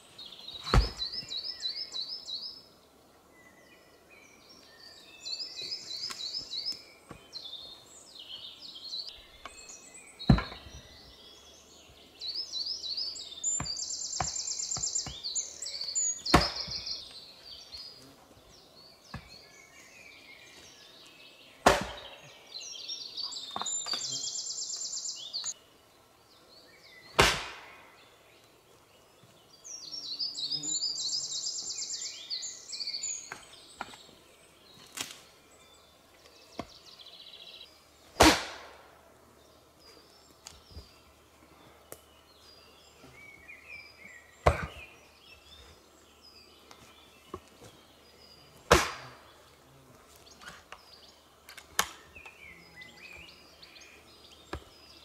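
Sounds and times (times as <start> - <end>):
bird singing: 0.0 - 38.2, 39.2 - 55.0
axe chopping wooden log: 0.6 - 1.2, 10.3 - 10.7, 13.6 - 15.2, 16.3 - 16.9, 21.6 - 22.2, 27.1 - 27.7, 38.2 - 38.8, 44.4 - 44.9, 48.7 - 49.2.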